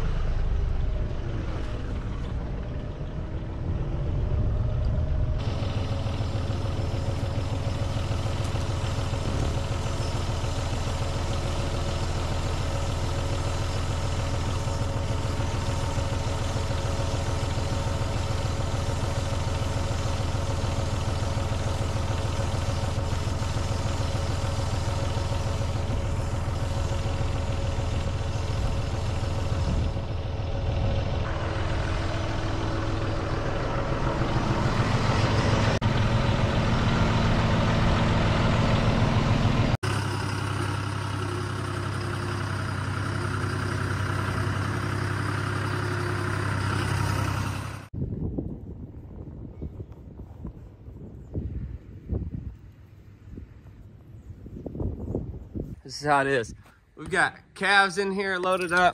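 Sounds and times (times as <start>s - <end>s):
tractor engine running: 0.0s - 48.0s, 50.8s - 58.9s.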